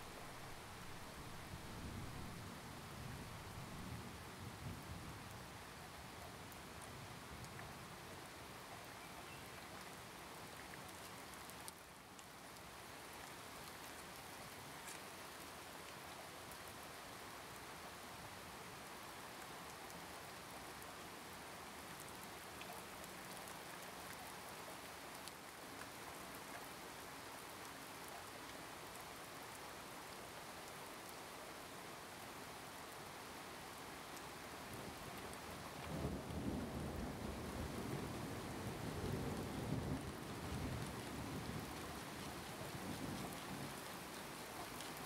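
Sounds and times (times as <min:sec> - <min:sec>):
steady soft hiss: 0:00.0 - 0:05.0
faint ticks: 0:07.4 - 0:07.7, 0:13.2 - 0:15.1.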